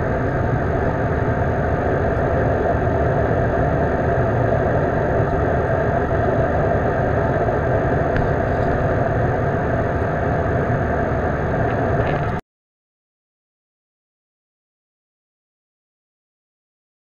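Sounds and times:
jet cabin engine roar: 0.0 - 12.4.

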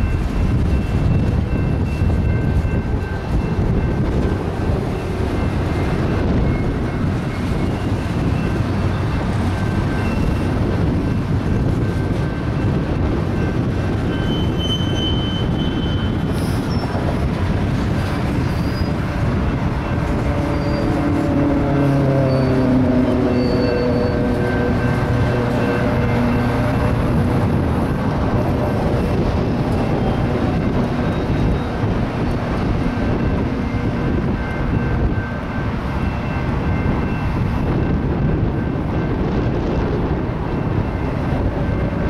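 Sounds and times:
train wheels rumbling on rails: 0.0 - 42.0
high wheel squeal: 6.5 - 10.6, 14.0 - 17.2, 18.3 - 27.6, 28.3 - 35.4.

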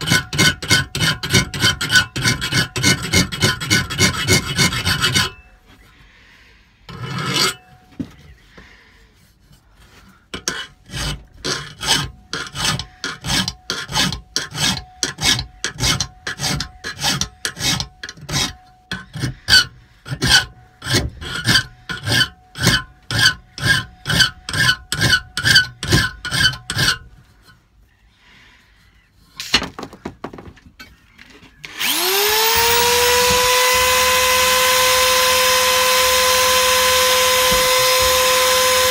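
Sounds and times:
hand file rasping on metal tube: 0.0 - 5.5, 6.9 - 7.7, 9.4 - 27.6, 31.8 - 38.9
electric grinder running: 31.7 - 38.9.

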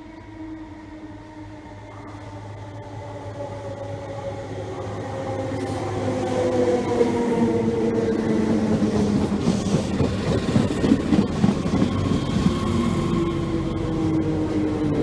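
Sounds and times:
train wheel clatter: 8.5 - 13.2.

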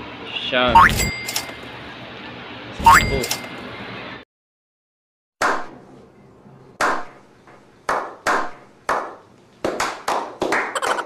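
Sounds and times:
group clapping: 7.9 - 11.0.

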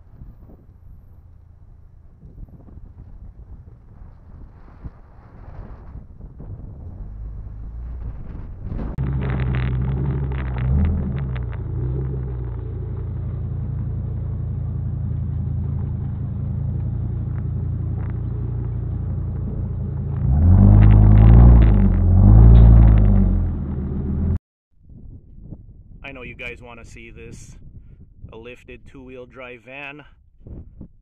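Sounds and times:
van engine running and revving: 6.2 - 24.4.

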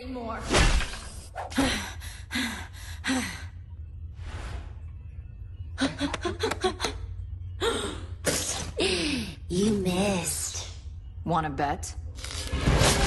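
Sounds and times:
low drone of background score: 1.1 - 13.0.

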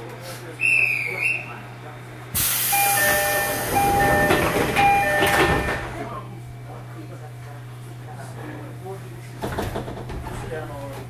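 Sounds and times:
compressed air hiss: 2.4 - 2.8
two-note door chime: 2.8 - 5.8.

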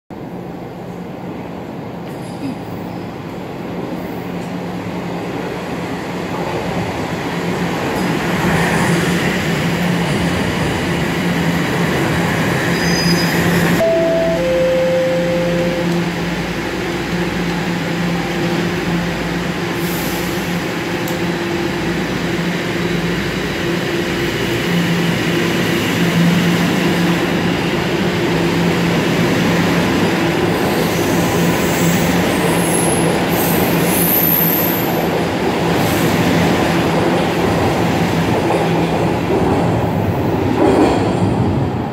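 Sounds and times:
subway train hum and rumble: 0.1 - 41.9
two-note falling chime: 13.8 - 16.2.

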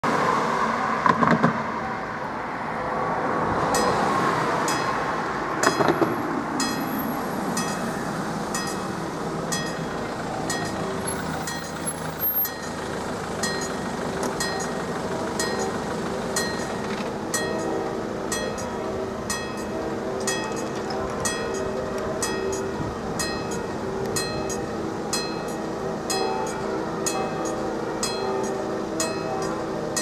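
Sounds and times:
car passing: 0.0 - 20.1
road traffic hum: 0.0 - 30.0
level crossing warning bell: 3.6 - 30.0.

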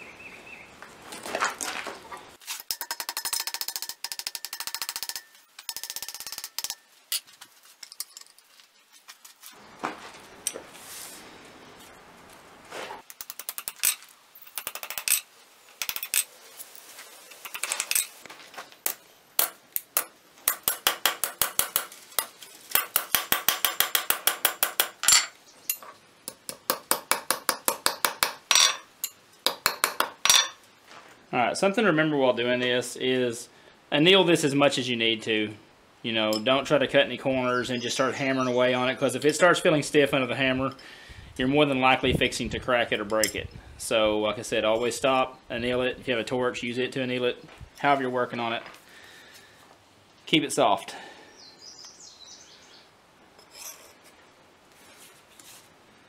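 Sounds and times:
hammer tapping copper sheet: 19.4 - 25.1.

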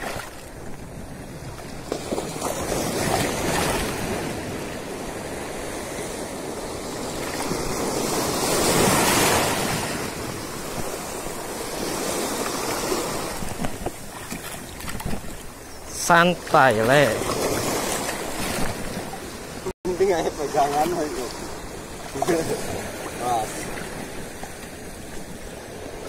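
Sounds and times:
wind noise on microphone: 0.0 - 16.4, 17.2 - 19.7
sea surf washing around legs: 0.0 - 26.0.

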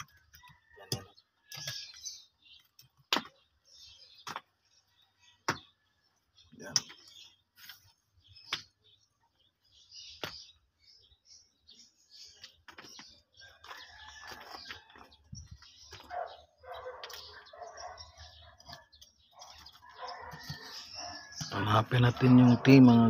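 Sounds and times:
hammer knocking and scraping soil: 0.0 - 5.9
birds chirping: 0.0 - 23.0.

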